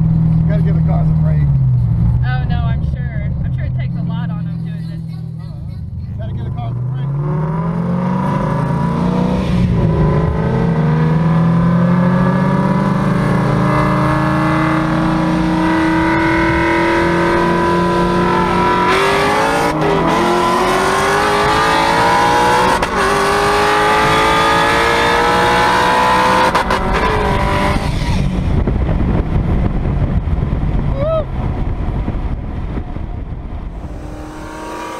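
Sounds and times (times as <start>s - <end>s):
car engine accelerating hard: 0.0s - 34.9s
wind rushing past car: 6.4s - 34.9s
gear upshifts: 33.8s - 34.9s.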